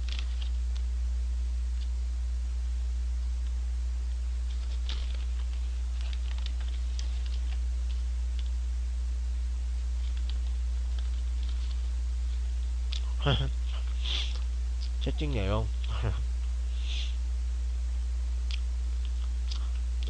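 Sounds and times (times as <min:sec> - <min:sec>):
paper bag crinkling: 0:00.0 - 0:00.6, 0:04.5 - 0:07.6
low electrical hum: 0:00.0 - 0:20.0.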